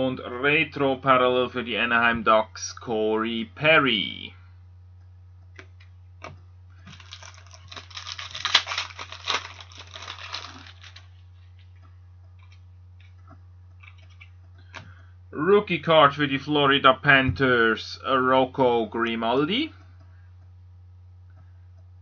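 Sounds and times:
low steady hum: 0.0 - 22.0
cards rustling and shuffling: 5.6 - 11.8.

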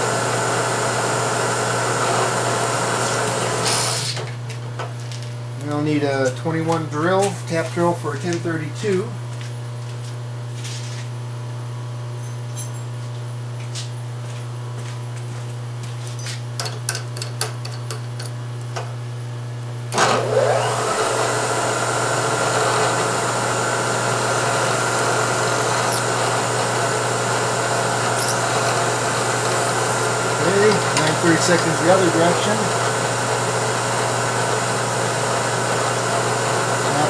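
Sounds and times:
milling machine spindle whine: 20.0 - 37.0.

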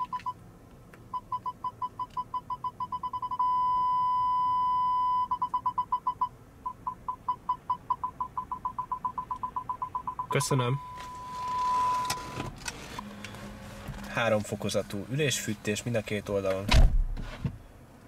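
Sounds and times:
parking sensor beeping: 0.0 - 0.4, 1.1 - 14.3.

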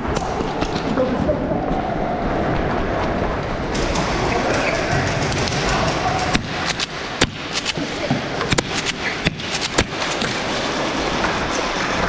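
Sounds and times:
noisy background: 0.0 - 12.0
airsoft guns firing: 3.7 - 11.0.

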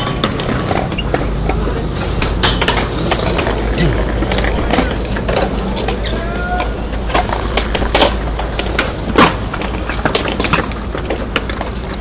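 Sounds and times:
skateboard wheels rolling on concrete: 0.0 - 12.0
skateboards clacking on ground: 0.0 - 12.0.

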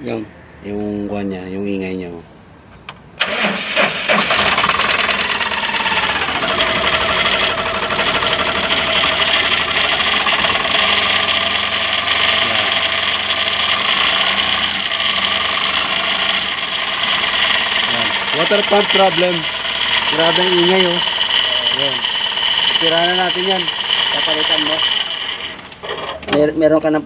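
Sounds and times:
engine whine: 2.7 - 26.3
small truck engine running: 3.2 - 26.2
metal-to-metal grinding noise: 6.0 - 26.2.

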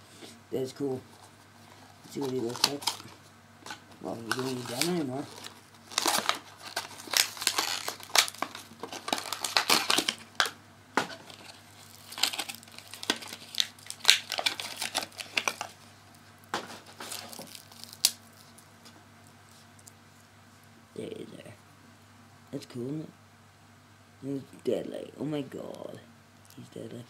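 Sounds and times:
plastic packaging crinkling: 1.2 - 19.9.

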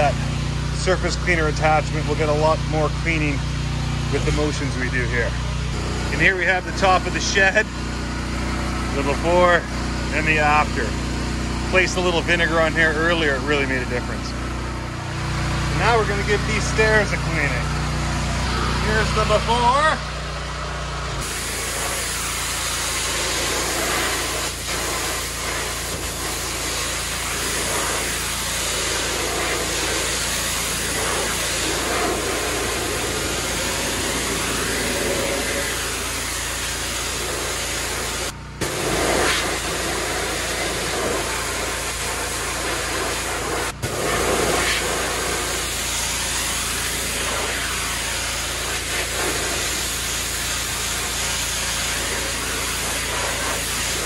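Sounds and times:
pressure washer hum: 0.0 - 54.0
water jet hissing on wood: 21.2 - 54.0.

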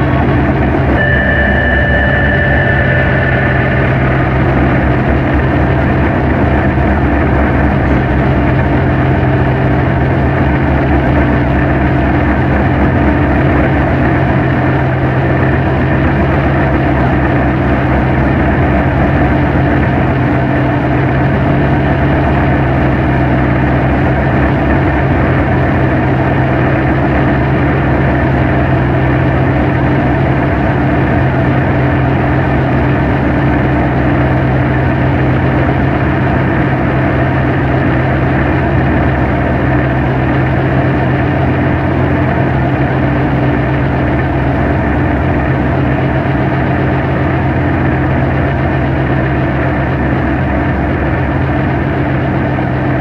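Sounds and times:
high steady tone: 0.0 - 13.1
dark ambient drone music: 0.0 - 53.0.

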